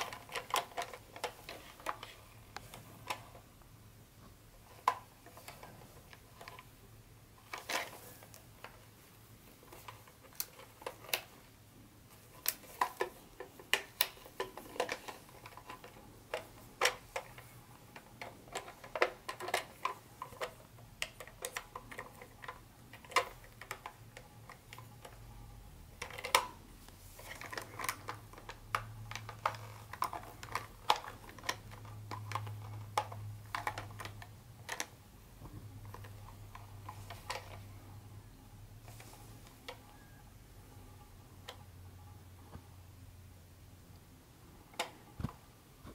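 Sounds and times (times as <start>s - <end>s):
plastic toy train clicking and rattling: 0.0s - 3.4s, 4.6s - 6.7s, 7.4s - 11.5s, 12.1s - 25.3s, 25.9s - 35.0s, 35.7s - 37.8s
low steady hum: 0.0s - 45.9s.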